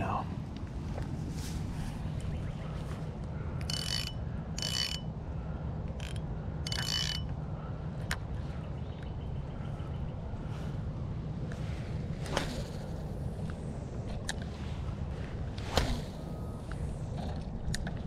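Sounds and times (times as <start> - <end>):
fishing reel whirring: 3.6 - 5.1, 6.0 - 7.3.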